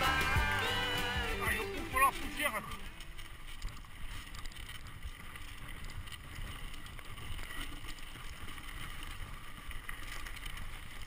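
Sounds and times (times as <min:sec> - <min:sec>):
tyres rumbling on dirt: 0:00.0 - 0:03.0
bike rattling and ticking: 0:00.0 - 0:11.0.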